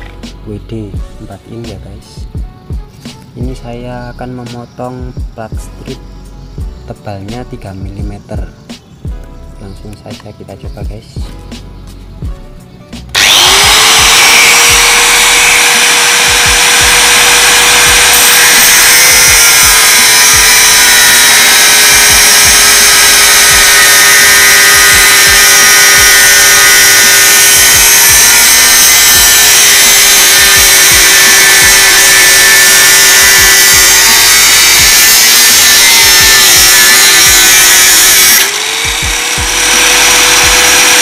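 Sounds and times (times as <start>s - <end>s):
angle grinder whining: 13.1s - 41.0s
grinder cutting steel bar: 13.1s - 41.0s.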